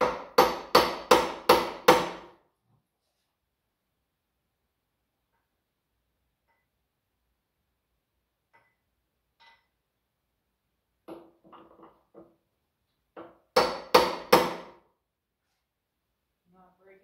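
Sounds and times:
light metallic knocks and clinks: 8.5 - 9.8.

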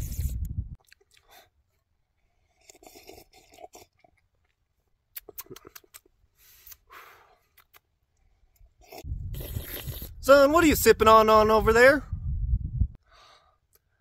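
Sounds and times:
sipping from a soda: 2.5 - 4.2, 8.8 - 10.2.

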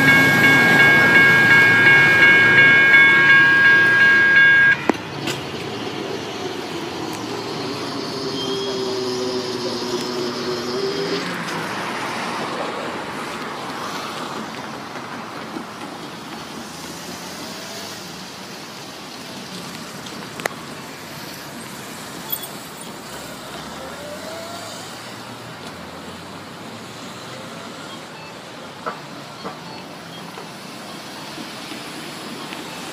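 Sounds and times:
road traffic noise: 0.0 - 32.9.

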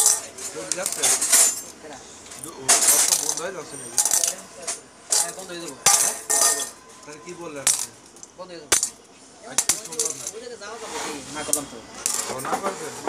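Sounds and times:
metal parts clinking on workbench: 0.0 - 1.8, 2.4 - 6.8, 7.6 - 9.0, 9.6 - 10.4.

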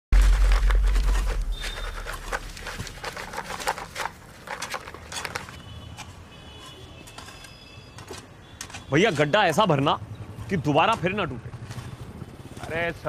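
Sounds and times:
shovels scraping gravel mix: 0.1 - 7.5
street background: 0.1 - 13.0.

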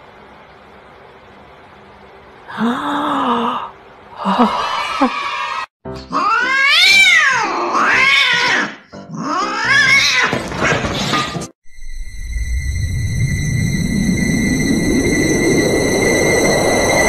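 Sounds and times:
cat yowling: 4.8 - 11.2
steady high tone: 11.6 - 17.0
low rumble of music: 11.8 - 17.0.

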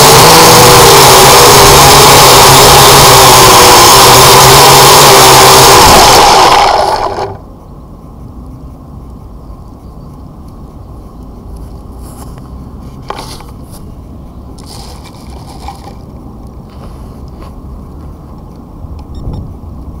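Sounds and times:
scrapes and knocks on grass: 12.1 - 13.9, 14.6 - 16.0.

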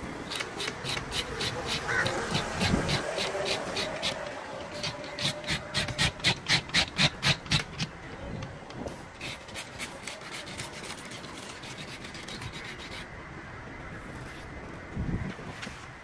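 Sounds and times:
fish scaler rasping on scales: 0.2 - 8.0.

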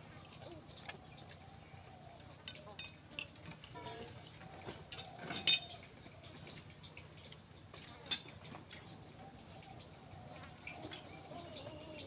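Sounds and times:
spoons clinking on plates: 4.9 - 5.8.

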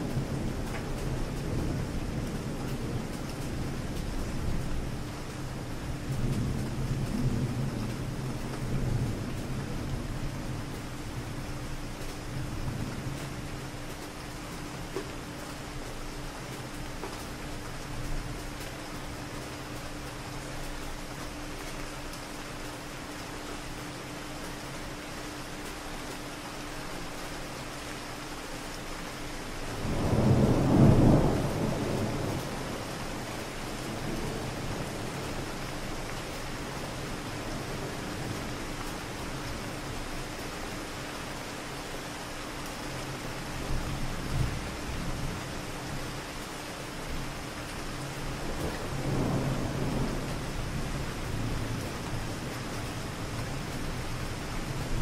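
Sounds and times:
steady rain: 0.0 - 55.0
distant thunder rumble: 29.7 - 35.5, 48.3 - 55.0.

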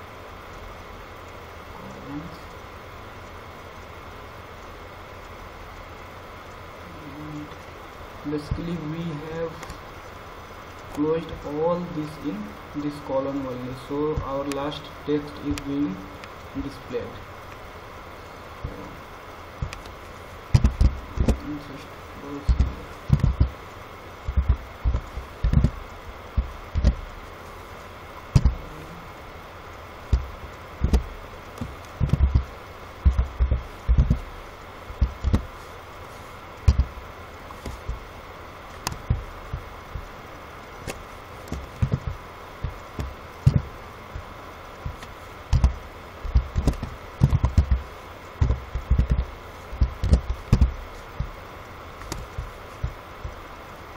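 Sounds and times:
faint steady hiss: 0.0 - 53.9.

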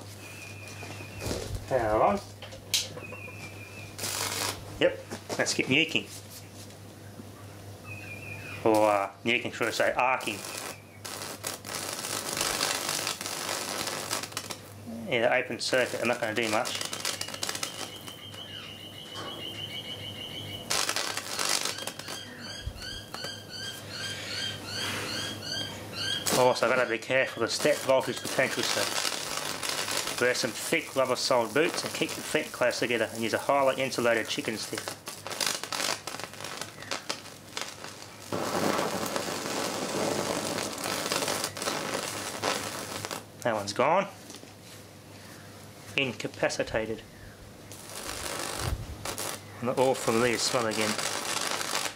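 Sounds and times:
electric arc hissing crackle: 0.0 - 0.2, 1.1 - 2.9, 3.8 - 6.1, 8.6 - 18.8, 20.5 - 23.3, 26.0 - 43.7, 47.7 - 51.9
low electrical hum: 0.0 - 51.9.

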